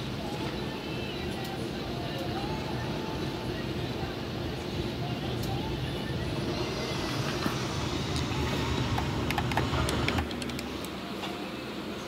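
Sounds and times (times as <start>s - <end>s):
low rumble: 6.2s - 10.1s
sharp clicks: 9.0s - 10.9s.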